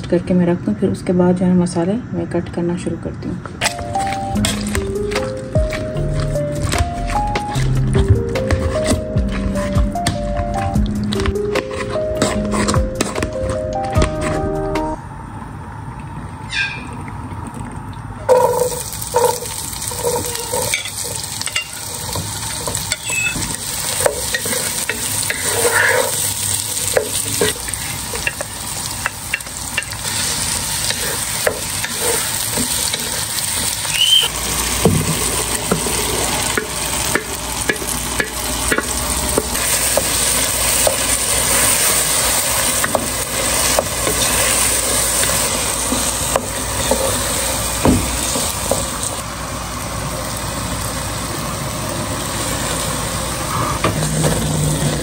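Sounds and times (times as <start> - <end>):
spatula scraping a pan: 11.5 - 13.2, 18.3 - 28.7, 29.3 - 33.8, 39.6 - 47.2
oil sizzling in a pan: 18.3 - 55.0.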